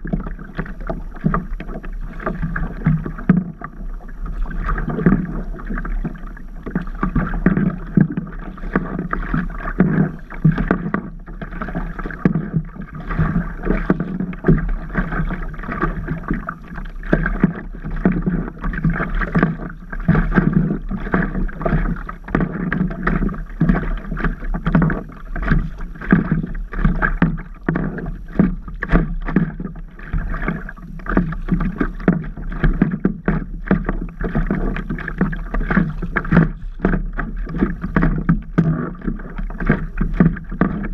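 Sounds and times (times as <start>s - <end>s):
water lapping against paddleboard: 0.0s - 40.9s.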